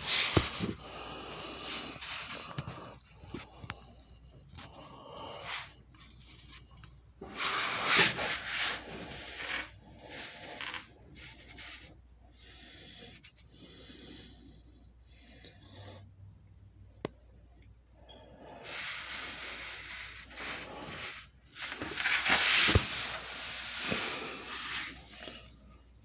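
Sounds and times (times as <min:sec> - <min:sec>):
rustling: 0:19.6 - 0:25.6.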